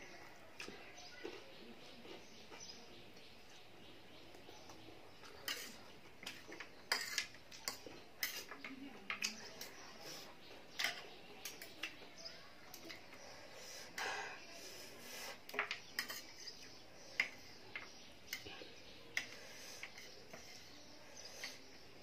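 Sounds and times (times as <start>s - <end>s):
cutlery clinking on a tray: 4.6s - 9.8s, 10.7s - 12.1s, 15.5s - 21.8s.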